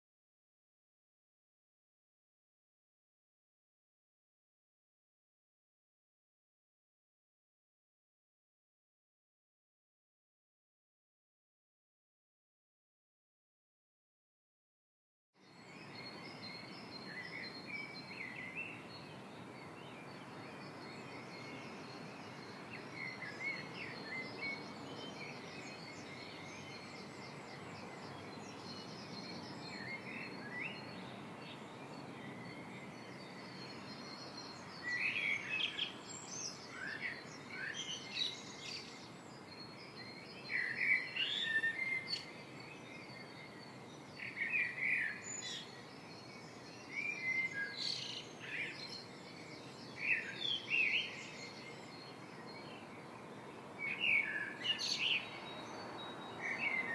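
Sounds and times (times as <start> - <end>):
birds chirping and singing: 15.4 - 56.9
steady background hiss: 15.6 - 56.9.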